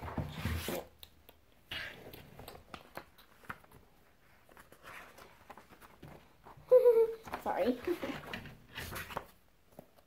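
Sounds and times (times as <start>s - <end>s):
paper pages rustling: 2.1s - 10.0s.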